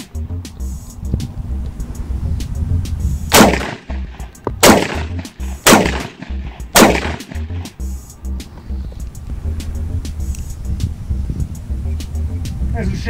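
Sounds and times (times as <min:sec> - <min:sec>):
bullets hitting iron plate: 0:03.3 - 0:07.4
rifle shots: 0:03.3 - 0:07.5.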